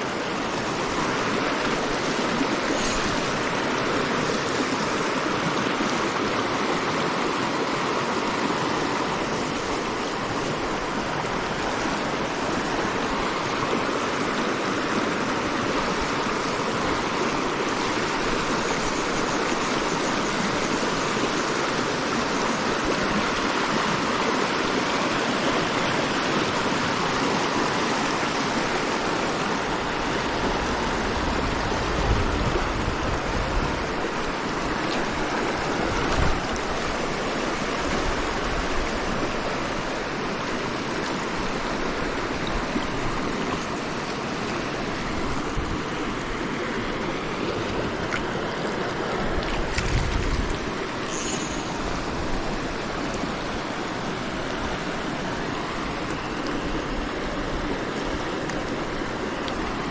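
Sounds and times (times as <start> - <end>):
river rushing over rocks: 0.0 - 59.9.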